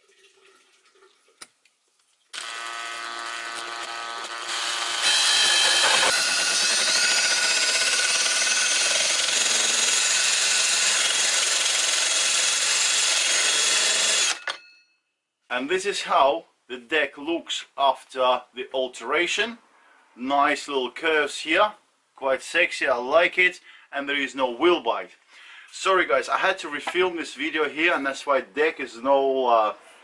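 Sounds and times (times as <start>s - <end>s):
cordless drill with hole saw cutting wood: 2.4s - 14.6s.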